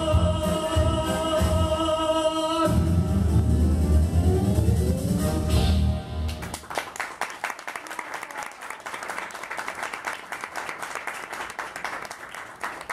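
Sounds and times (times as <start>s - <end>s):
music: 0.0s - 6.6s
audience applauding: 6.3s - 12.9s.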